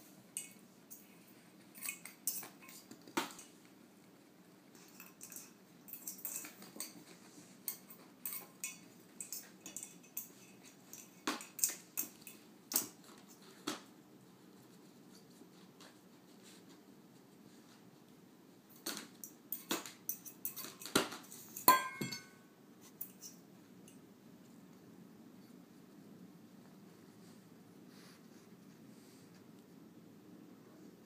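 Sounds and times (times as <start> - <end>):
ornament ball clinking on floor: 21.3 - 24.0.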